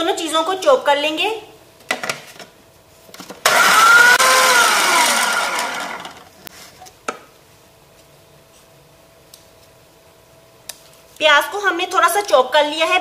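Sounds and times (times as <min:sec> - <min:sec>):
food processor chopping: 0:03.4 - 0:06.2.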